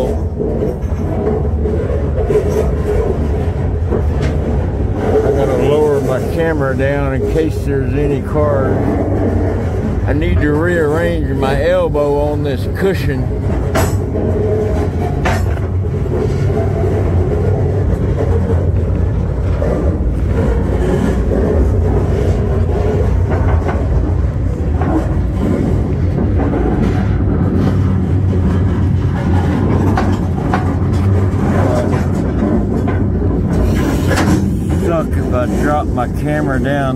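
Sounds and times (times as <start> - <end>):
steel wheels rumbling on rail: 0.0 - 36.9.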